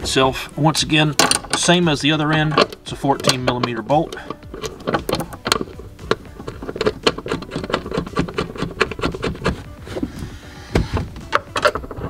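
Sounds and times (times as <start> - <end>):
socket ratchet clicking: 1.2 - 9.7.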